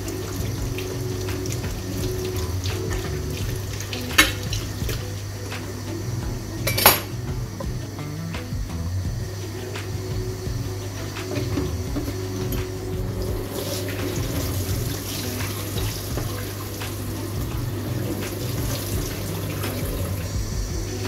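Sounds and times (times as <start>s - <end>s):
tap water running into sink: 11.2s - 20.4s.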